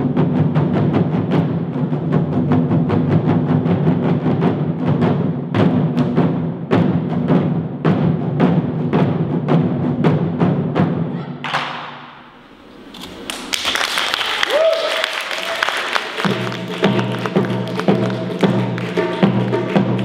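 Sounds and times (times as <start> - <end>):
large barrel drums beating: 0.0 - 12.4, 13.4 - 20.0
applause: 13.2 - 20.0.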